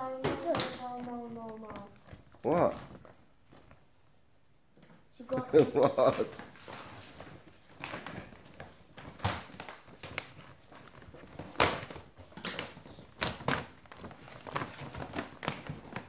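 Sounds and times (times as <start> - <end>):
paper bag rustling and crinkling: 0.5 - 3.8, 5.8 - 16.0.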